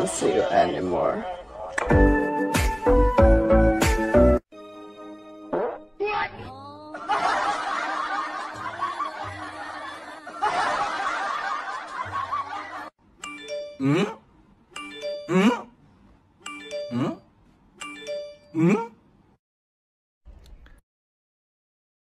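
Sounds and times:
bell-like ding: 13.2 - 13.8.

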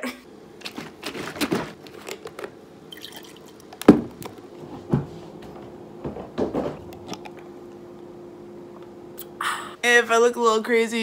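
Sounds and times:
coffee pouring into mug: 2.2 - 4.3.

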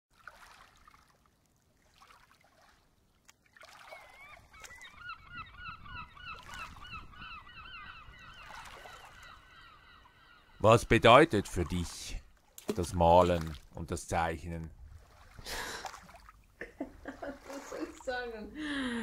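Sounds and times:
faint flock of birds calling: 3.8 - 12.4.

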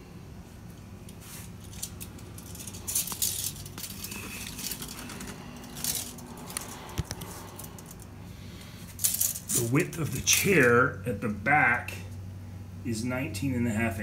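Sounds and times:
faint low hum: 0.0 - 14.0
rustling handling noise: 0.5 - 10.7.

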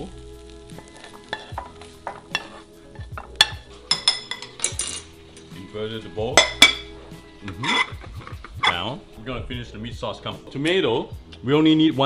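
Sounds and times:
metal spoon scraping a bowl: 7.5 - 8.9.

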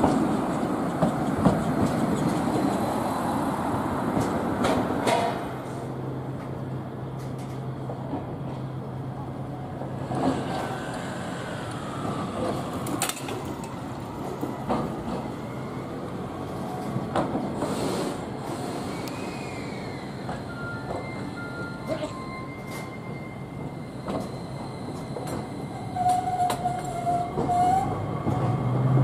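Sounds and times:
wheels clicking over rail joints: 0.0 - 2.9, 4.1 - 6.6, 10.0 - 15.4, 24.0 - 29.0
tram running on street track: 0.0 - 29.0
tram whine: 0.0 - 29.0.

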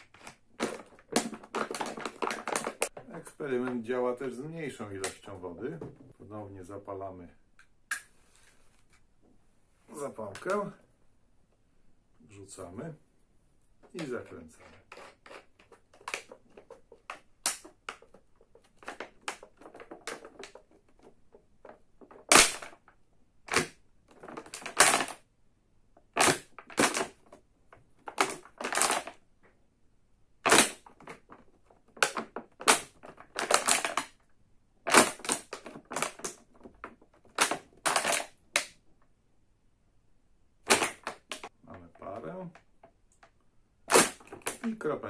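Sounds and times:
plastic bottle crackling when squeezed: 0.0 - 5.3, 14.0 - 25.3, 26.0 - 29.2, 30.4 - 38.8, 40.6 - 42.7, 43.8 - 44.8.

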